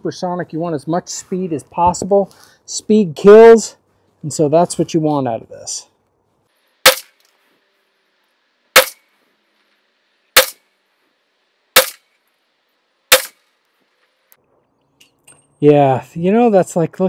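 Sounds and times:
pistol shots: 0:06.8 - 0:07.2, 0:08.8 - 0:09.0, 0:10.4 - 0:10.6, 0:11.8 - 0:12.1, 0:13.1 - 0:13.4.

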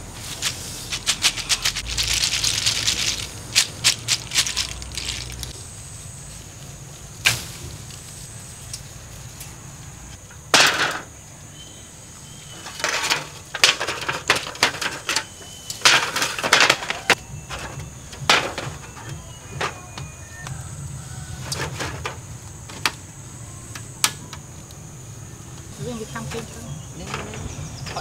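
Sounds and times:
hard objects clicking and clattering: 0:00.3 - 0:05.6, 0:12.5 - 0:20.1
faint steady high tone: 0:17.0 - 0:21.4.

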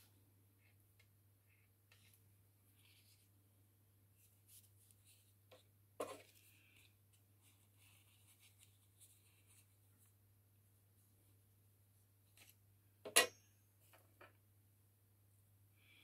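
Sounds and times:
brush rustling on nail wipe: 0:04.2 - 0:10.1.

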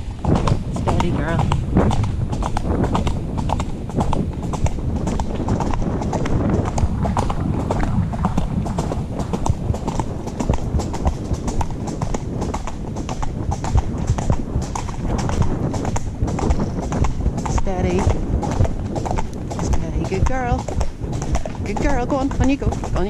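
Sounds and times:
horse hooves on gravel: 0:00.0 - 0:23.0
low rumble: 0:00.0 - 0:23.0.

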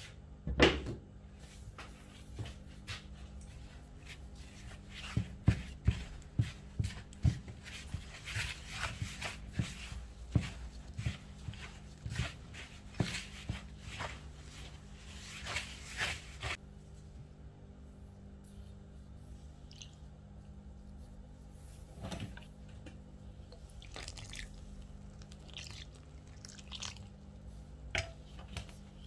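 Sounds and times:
plastic glove rustling in flour: 0:03.6 - 0:17.1, 0:23.7 - 0:27.9.

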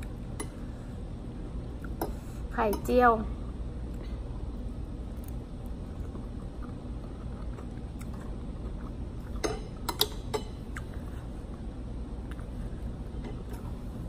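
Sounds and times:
low hum: 0:00.0 - 0:14.0
chewing with mouth closed: 0:05.1 - 0:09.5.

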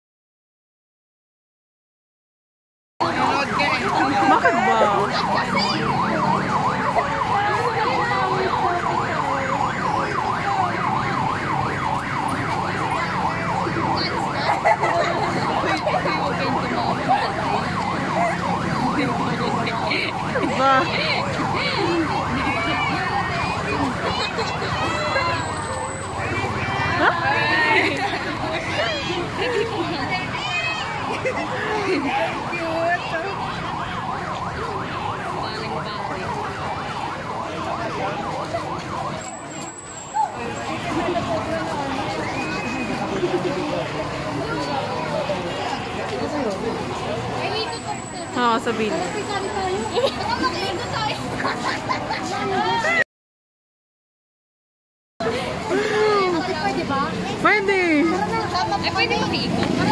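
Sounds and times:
electronic siren yelping: 0:03.0 - 0:27.8.

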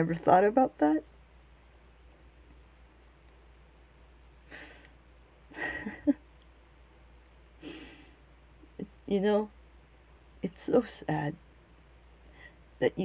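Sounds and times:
woman breathing and sniffing: 0:07.6 - 0:08.2.

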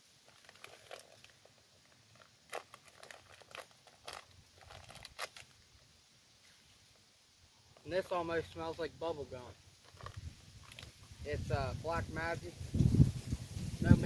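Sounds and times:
plastic bag crinkling: 0:00.2 - 0:05.6, 0:09.8 - 0:11.2.

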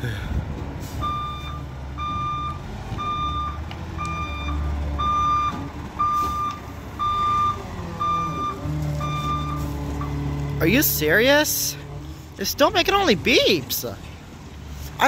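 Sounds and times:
truck engine running: 0:00.0 - 0:15.0
truck backup alarm beeping: 0:00.8 - 0:11.4.

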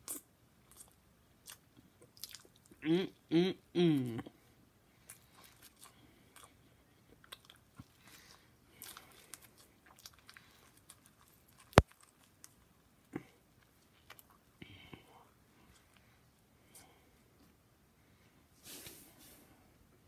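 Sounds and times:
person chewing: 0:00.0 - 0:02.8, 0:05.0 - 0:14.5.

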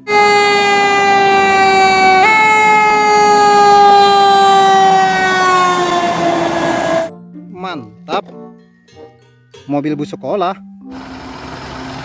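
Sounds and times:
fire engine siren: 0:00.0 - 0:07.1.

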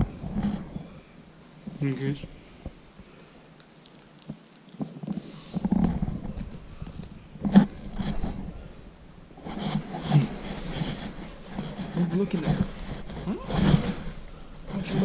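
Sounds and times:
fabric rustling: 0:09.4 - 0:15.0.

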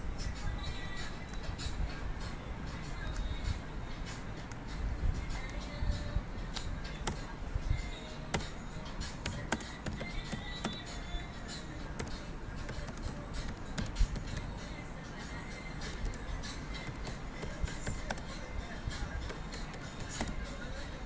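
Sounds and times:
background music: 0:00.0 - 0:21.0
keyboard keys clicking: 0:06.5 - 0:07.3, 0:09.2 - 0:10.9, 0:11.9 - 0:14.5, 0:15.8 - 0:18.4, 0:19.2 - 0:20.5.

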